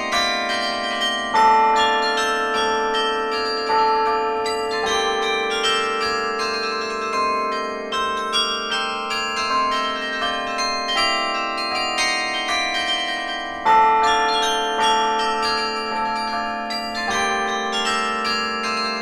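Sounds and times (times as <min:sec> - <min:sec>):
carillon bell melody: 0:00.0 - 0:19.0
long-sounding low bell: 0:00.0 - 0:19.0.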